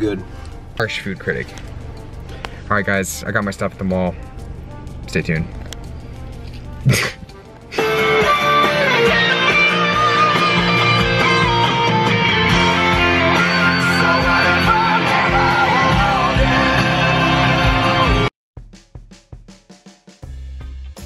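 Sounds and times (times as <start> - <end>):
background music with guitar: 4.9 - 18.3.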